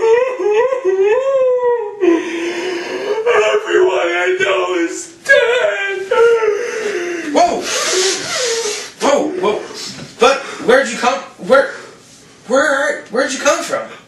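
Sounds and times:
man wailing and sobbing: 0:00.0 - 0:09.9
man blowing nose: 0:06.8 - 0:10.0.

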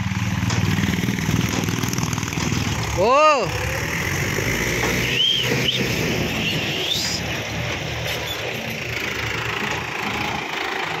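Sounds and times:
tractor diesel engine running: 0:00.0 - 0:11.0
high whistle-like tone: 0:05.0 - 0:07.2.

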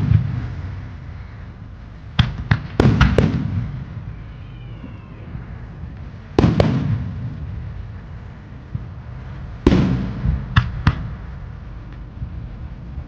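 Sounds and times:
firework shells bursting: 0:02.1 - 0:03.7.

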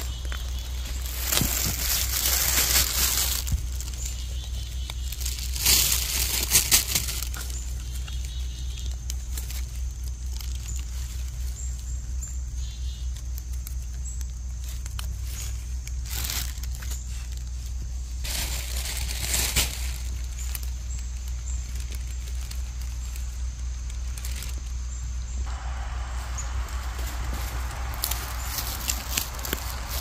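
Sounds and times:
low rumble: 0:00.0 - 0:12.2, 0:19.8 - 0:30.0
footsteps through pine needles: 0:00.0 - 0:30.0
pine needles rustling and crackling: 0:00.0 - 0:30.0.

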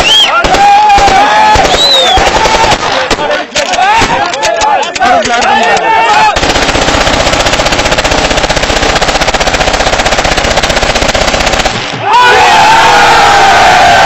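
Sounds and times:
crowd shouting and cheering: 0:00.0 - 0:06.4, 0:11.8 - 0:14.0
rapid automatic gunfire: 0:00.4 - 0:03.4, 0:06.2 - 0:11.9.

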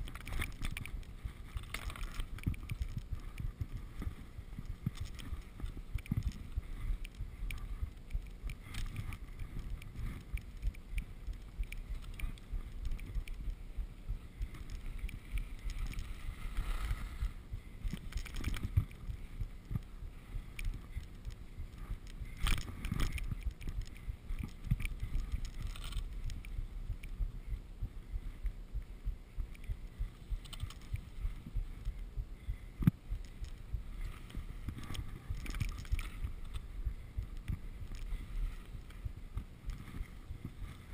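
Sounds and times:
low wind rumble on microphone: 0:00.0 - 0:40.9
skis scraping over snow: 0:14.5 - 0:17.4.

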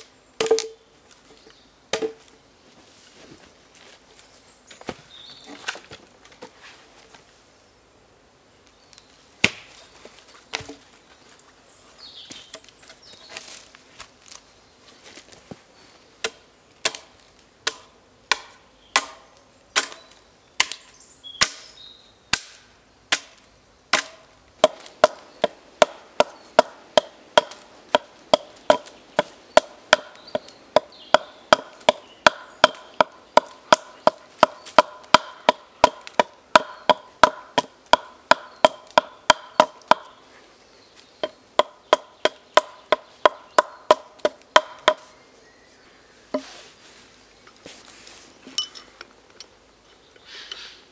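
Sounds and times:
hatchet chopping wooden pole: 0:00.0 - 0:00.8, 0:01.9 - 0:02.2, 0:09.4 - 0:09.7, 0:16.2 - 0:20.0, 0:20.6 - 0:21.7, 0:22.3 - 0:40.2, 0:41.2 - 0:45.1.

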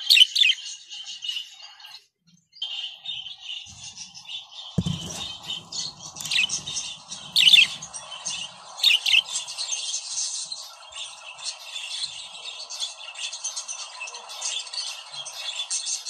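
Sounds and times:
sharp bird chirps: 0:02.6 - 0:16.0
dull low thump: 0:04.8 - 0:08.7
budgerigars chattering: 0:04.8 - 0:16.0.

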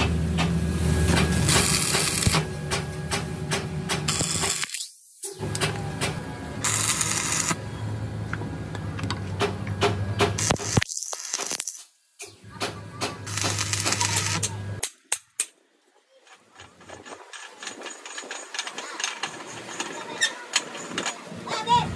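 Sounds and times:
low machine hum: 0:00.0 - 0:04.6, 0:05.4 - 0:10.8, 0:12.4 - 0:14.8.

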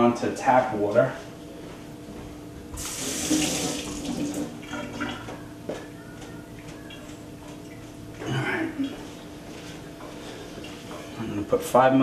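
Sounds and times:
faucet running: 0:02.8 - 0:05.2.

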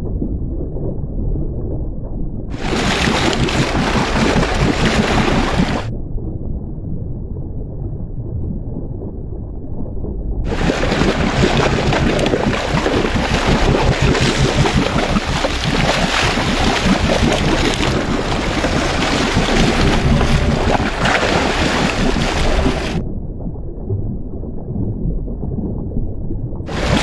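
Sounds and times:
water churning and splashing: 0:02.5 - 0:05.9, 0:10.5 - 0:23.0, 0:26.7 - 0:27.0
wind buffeting microphone: 0:10.4 - 0:23.5.

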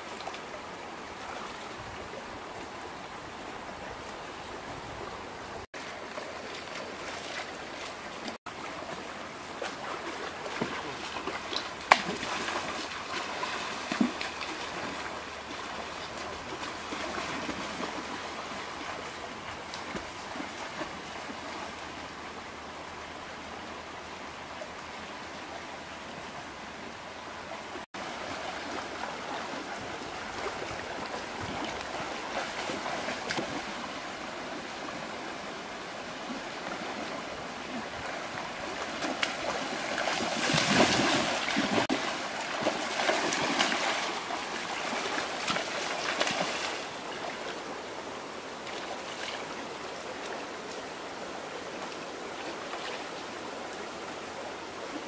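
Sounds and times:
stream rushing over stones: 0:00.0 - 0:55.0
people wading and splashing: 0:05.8 - 0:21.4, 0:28.0 - 0:47.7.

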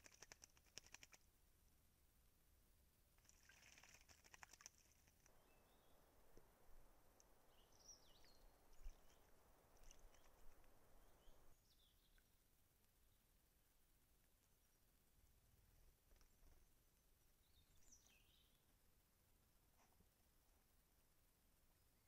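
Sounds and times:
faint steady hiss: 0:00.0 - 0:22.0
bird splashing in water: 0:03.2 - 0:05.3, 0:08.9 - 0:11.0.

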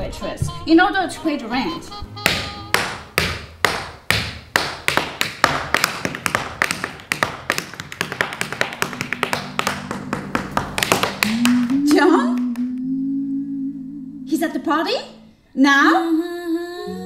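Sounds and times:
tap shoes on wooden floor: 0:02.2 - 0:11.4.

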